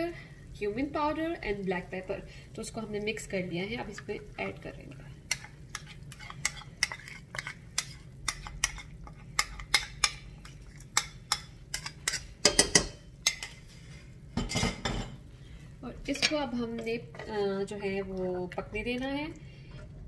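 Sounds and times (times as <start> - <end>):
spoon scraping ceramic bowl: 5.4 - 9.8.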